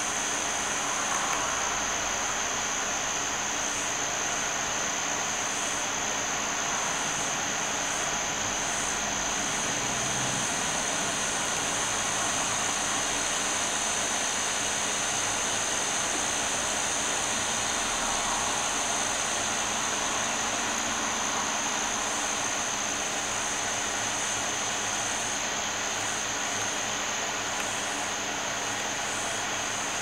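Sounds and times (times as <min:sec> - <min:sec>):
constant high whine: 0:00.0 - 0:30.0
steady hiss: 0:00.0 - 0:30.0.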